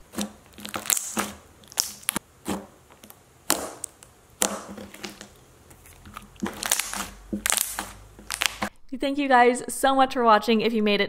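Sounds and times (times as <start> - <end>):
slime stretchy crackles: 0.0 - 8.7
slime clicking and popping: 0.1 - 8.7.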